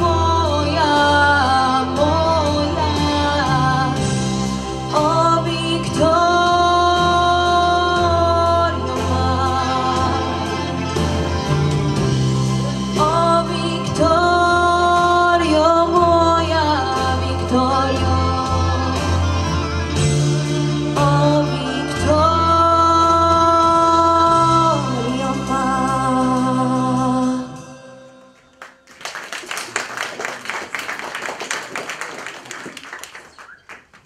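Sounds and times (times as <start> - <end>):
instrumental accompaniment: 0.0 - 31.8
audience applause: 28.4 - 34.0.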